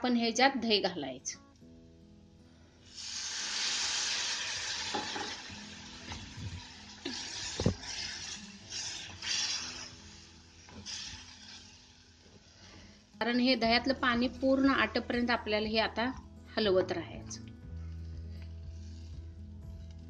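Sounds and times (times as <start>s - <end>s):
curd sizzling in hot pan: 2.8s - 13.3s, 18.6s - 20.0s.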